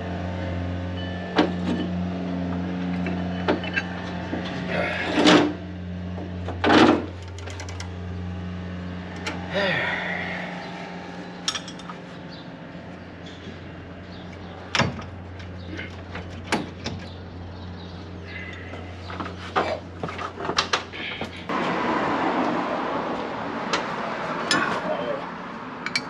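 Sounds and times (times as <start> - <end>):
steady low hum: 0.0 - 21.5
metal clicks and clanks: 2.8 - 5.6, 6.5 - 8.0, 11.4 - 12.0.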